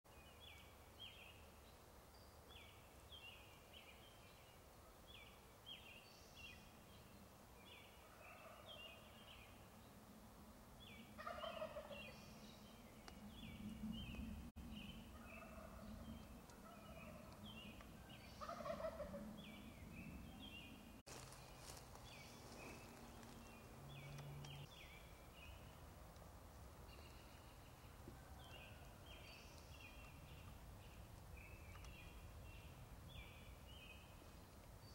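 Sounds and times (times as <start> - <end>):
turkey gobbling: 11.2 - 12.0, 18.4 - 19.3.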